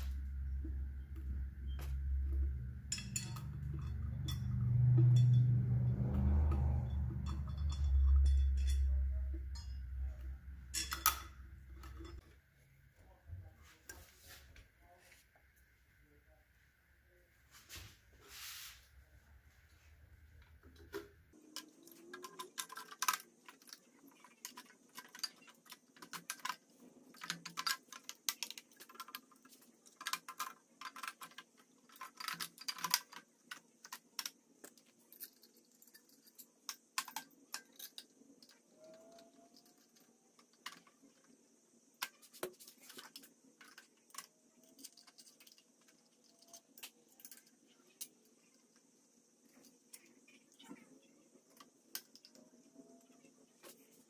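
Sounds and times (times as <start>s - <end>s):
metal parts clinking and rattling: 1.8s - 12.2s, 20.8s - 41.3s, 42.0s - 48.6s.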